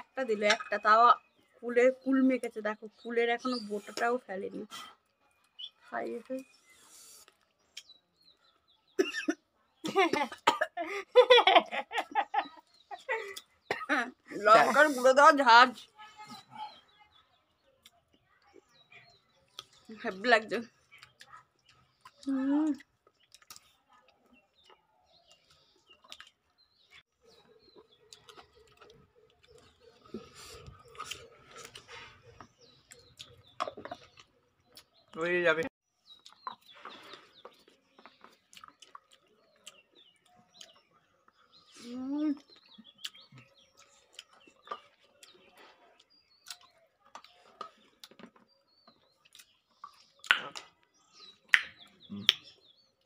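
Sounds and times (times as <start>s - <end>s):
small birds chirping: 0.0s - 53.0s
person chewing and lip smacking: 20.9s - 26.6s, 27.6s - 35.1s, 36.1s - 41.6s, 42.4s - 52.6s.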